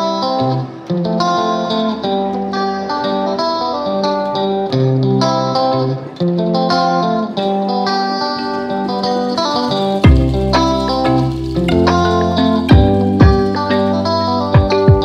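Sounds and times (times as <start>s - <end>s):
instrumental music of short notes: 8.4s - 15.0s.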